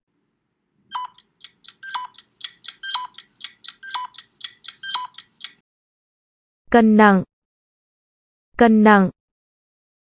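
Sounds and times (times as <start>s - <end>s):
quick high ticks: 1.0s - 5.6s.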